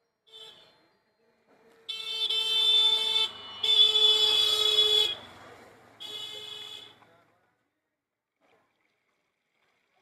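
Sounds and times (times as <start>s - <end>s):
vehicle horn honking: 1.9s - 5.3s, 6.0s - 7.0s.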